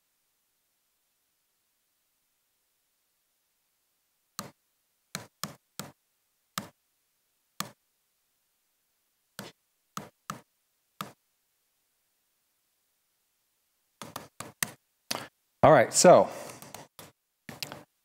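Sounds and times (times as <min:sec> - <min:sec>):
laptop keys clicking: 0:14.0 - 0:14.8, 0:16.5 - 0:17.9.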